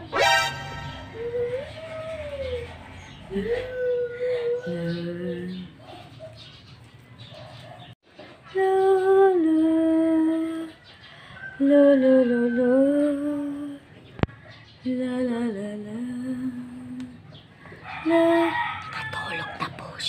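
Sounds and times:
woman humming a lullaby: 1.0 - 2.7, 3.3 - 5.7.

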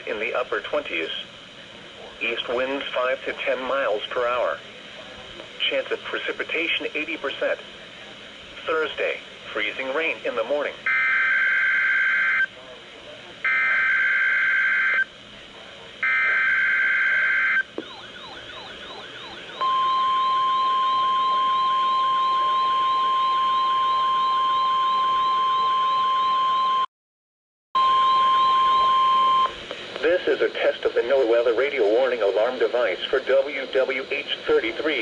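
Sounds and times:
steady warning tone: 8.5 - 26.9, 27.8 - 32.6
sweeping siren alarm: 10.8 - 12.5, 13.4 - 15.1, 16.0 - 26.9, 27.8 - 29.6.

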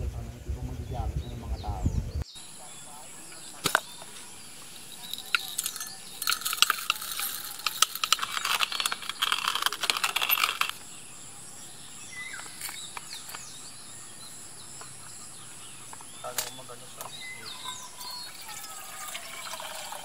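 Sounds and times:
small hard clinks and rattles: 4.9 - 10.8.

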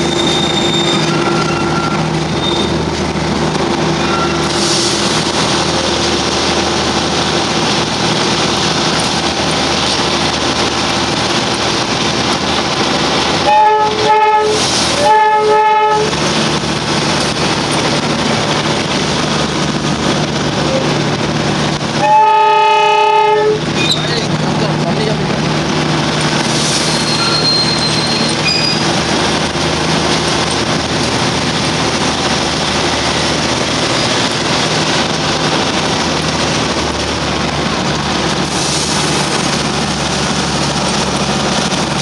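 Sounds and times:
train rolling rumble and rattle: 0.0 - 42.0
train horn blasts: 13.4 - 16.2, 22.0 - 23.7.

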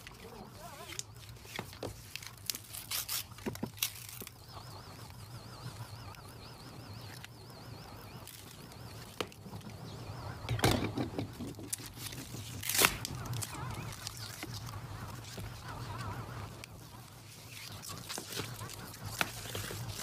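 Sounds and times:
paper crackling and ripping: 0.0 - 4.3, 11.8 - 16.0.

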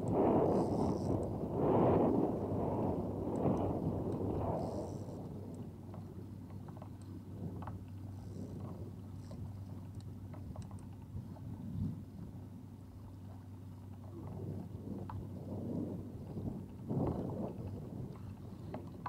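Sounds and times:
steady low hum: 0.0 - 19.0
water around a boat: 0.0 - 19.0
wind: 0.0 - 19.0
faint clicks: 3.3 - 11.4.

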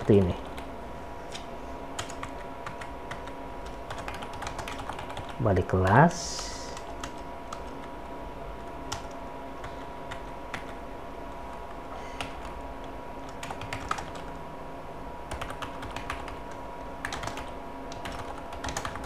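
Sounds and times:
computer keyboard typing: 0.0 - 0.7, 2.0 - 8.0, 8.6 - 14.4, 15.3 - 19.0
faint steady hum: 0.0 - 19.0.

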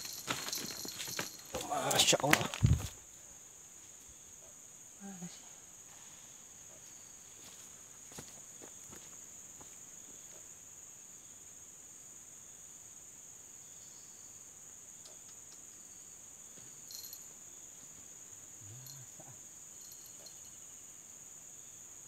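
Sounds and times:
faint clicks and rustles: 0.0 - 3.0
insects droning: 0.0 - 22.0.

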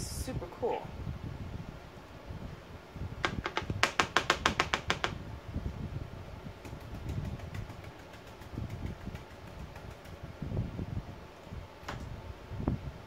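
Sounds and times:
paint brush tapping: 6.6 - 10.2.

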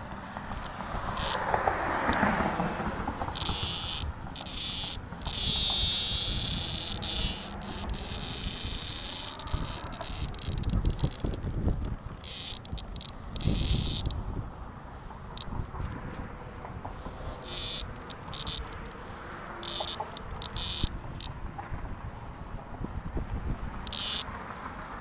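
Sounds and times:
cicada buzzing: 0.0 - 21.6, 23.2 - 25.0.

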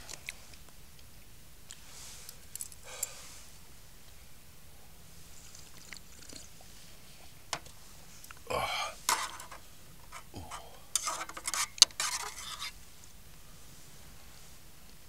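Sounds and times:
utensils clinking against a dish: 9.1 - 12.7.

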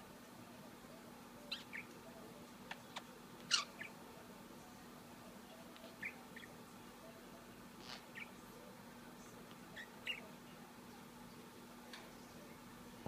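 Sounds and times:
budgie chirping: 1.5 - 1.9, 2.7 - 4.0, 5.9 - 6.6, 7.8 - 8.4, 9.8 - 10.3.

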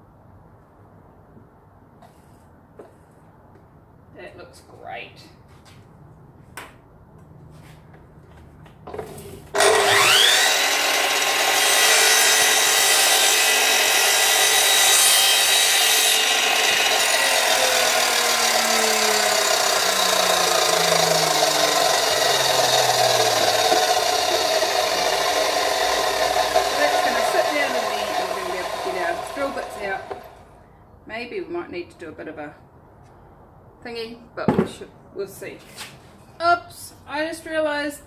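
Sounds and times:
miter saw motor whine: 9.5 - 30.4
low falling tone: 17.0 - 26.0.

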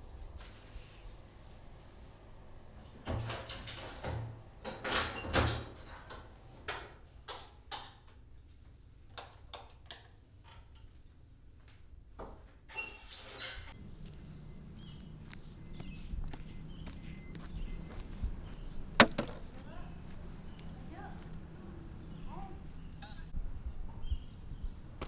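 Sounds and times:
brief squeak: 12.7 - 13.7
door: 19.0 - 19.4.

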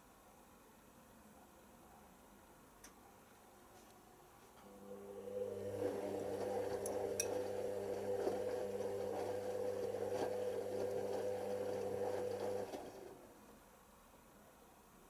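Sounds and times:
washing machine motor hum: 4.6 - 13.4.

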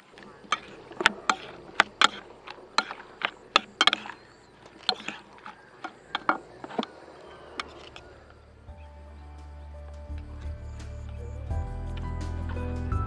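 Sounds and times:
fork scraping a bowl: 0.4 - 4.2, 4.8 - 6.8.

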